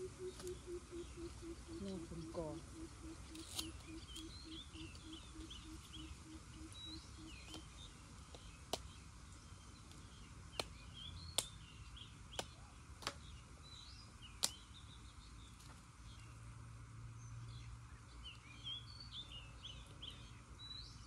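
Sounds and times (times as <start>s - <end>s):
small birds chirping: 0.0s - 21.0s
machete chopping bamboo: 12.3s - 13.2s.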